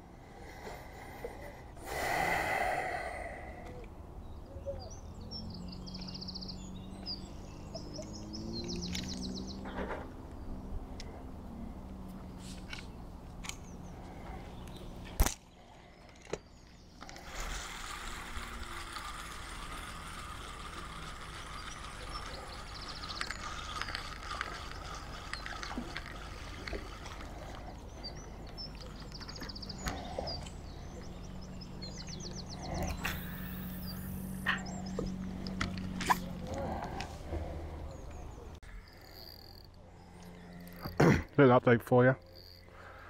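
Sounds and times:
fishing reel ticking: 17.0 - 30.2, 38.7 - 41.1, 41.8 - 43.0.

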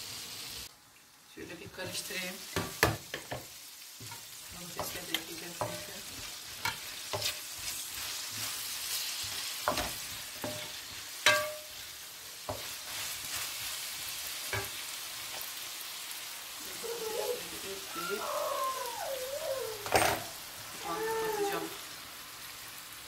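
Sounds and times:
vegetables sizzling in a frying pan: 0.0 - 23.0
wooden spoon knocking on pan: 2.6 - 4.2, 4.8 - 5.9, 9.7 - 11.7.

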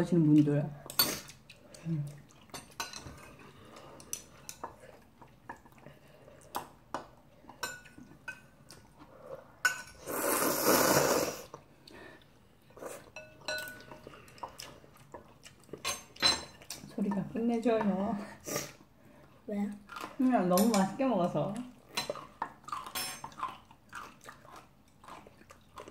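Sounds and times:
utensils clinking on porcelain bowls: 2.5 - 3.4, 7.6 - 8.5, 9.6 - 10.0, 13.1 - 14.1, 15.8 - 18.1, 20.2 - 23.4
noodle slurp: 10.0 - 11.6.

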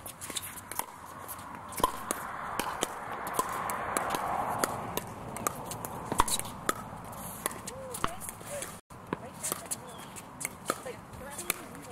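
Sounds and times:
feet shuffling on hard court: 0.0 - 2.0, 5.5 - 11.9.

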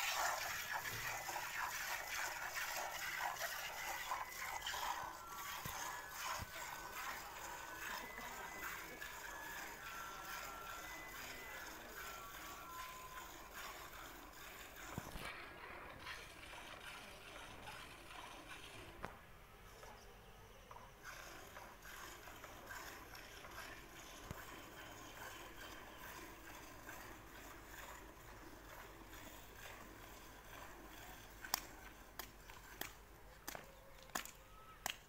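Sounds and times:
milk squirting into steel bucket: 0.0 - 12.6.

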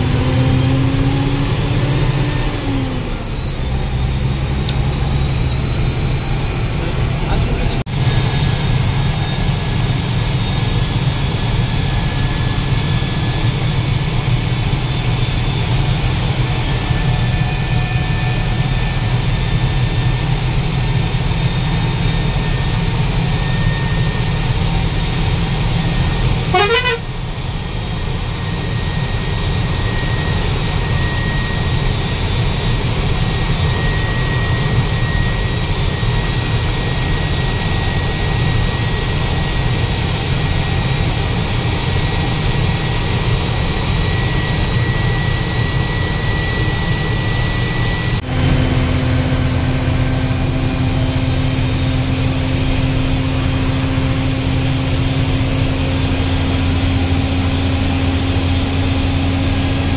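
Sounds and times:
road noise: 0.0 - 9.6, 24.2 - 30.9
bus engine rumble: 0.0 - 59.9.

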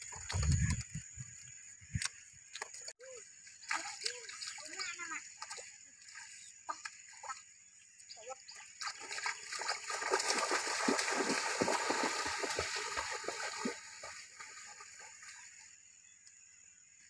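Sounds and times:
feet splashing through water: 3.6 - 7.4, 8.6 - 15.6.

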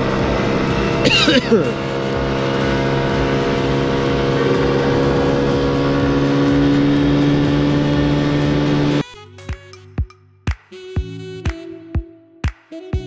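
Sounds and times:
motor scooter engine running: 0.0 - 9.0
wind and road noise: 0.0 - 9.0.

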